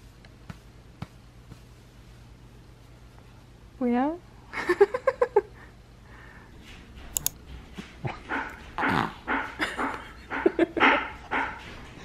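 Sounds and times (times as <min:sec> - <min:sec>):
sharp clicks: 0:07.1 - 0:07.4
infant grunting and squeaking: 0:08.8 - 0:09.2.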